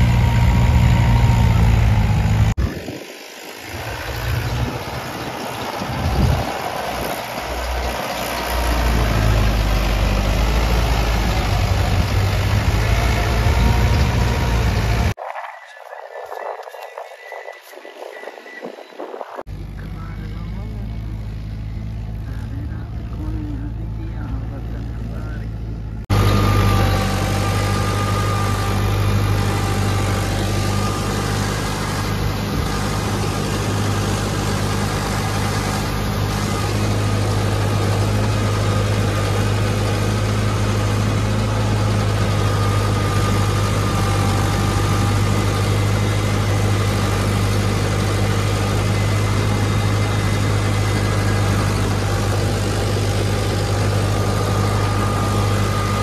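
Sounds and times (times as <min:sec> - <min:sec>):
faint engine whine: 0:00.0 - 0:56.0
tractor diesel engine drone: 0:00.0 - 0:56.0.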